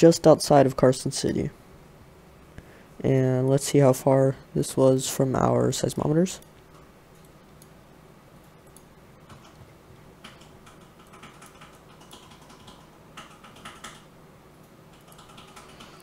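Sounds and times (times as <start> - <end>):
keyboard and mouse clicking: 8.4 - 16.0.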